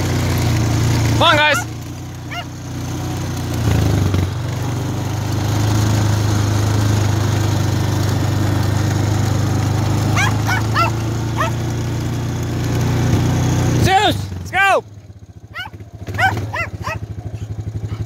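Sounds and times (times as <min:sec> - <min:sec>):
atv engine running: 0:00.0 - 0:18.0
dog yipping: 0:01.5 - 0:01.7, 0:02.3 - 0:02.5, 0:10.2 - 0:11.6, 0:15.5 - 0:18.0.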